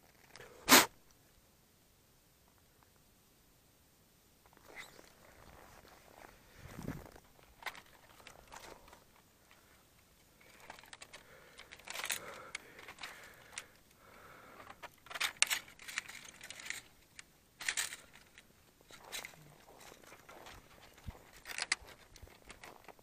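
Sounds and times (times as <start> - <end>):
rustling: 4.4 - 23.0
footsteps crunching on snow: 18.9 - 22.8.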